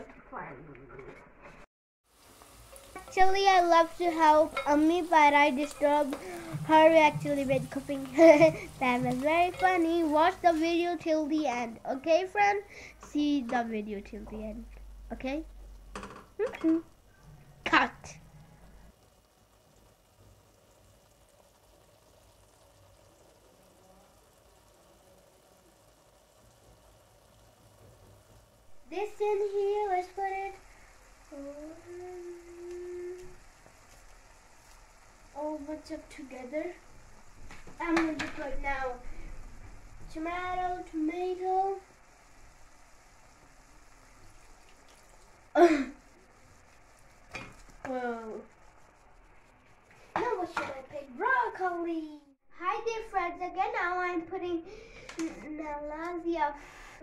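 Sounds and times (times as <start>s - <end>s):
food cooking hiss: 2.0s - 57.0s
child vocalizing: 31.3s - 33.4s, 45.6s - 46.0s.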